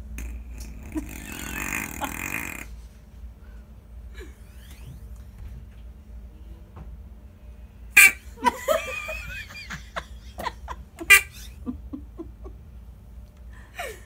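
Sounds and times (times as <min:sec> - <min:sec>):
people laughing: 0:08.3 - 0:12.7.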